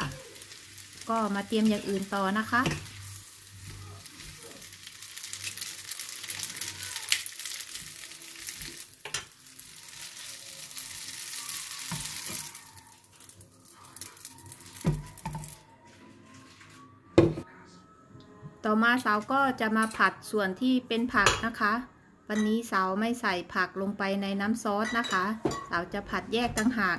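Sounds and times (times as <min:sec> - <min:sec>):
noodles sizzling in oil: 0:00.0 - 0:15.6
clinks of pan and dishes: 0:24.8 - 0:25.8.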